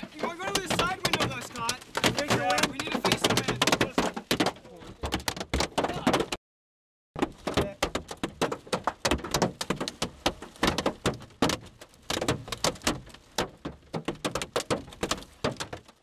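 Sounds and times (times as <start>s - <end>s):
hailstones striking a car: 0.0s - 6.4s, 7.2s - 16.0s.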